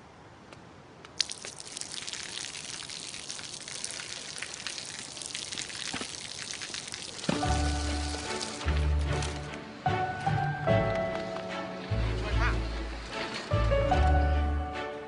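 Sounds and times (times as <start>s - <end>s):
water splashing on pavement: 1.1s - 9.0s
sharp splash: 1.2s - 8.8s.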